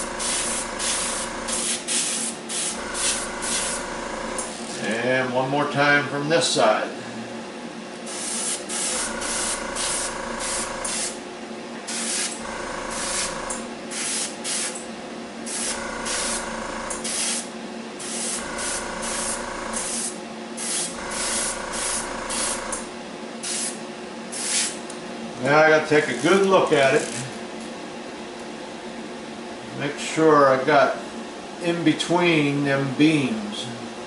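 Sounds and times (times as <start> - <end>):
airbrush spraying paint: 0.0 - 4.1, 8.1 - 11.2, 11.9 - 14.8, 15.5 - 22.8, 23.4 - 24.8
steady low hum: 0.0 - 34.0.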